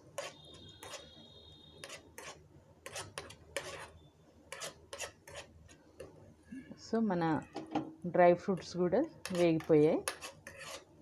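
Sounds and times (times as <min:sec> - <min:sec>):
spoon scraping a frying pan: 0:00.0 - 0:01.2, 0:01.8 - 0:05.8, 0:08.5 - 0:10.9.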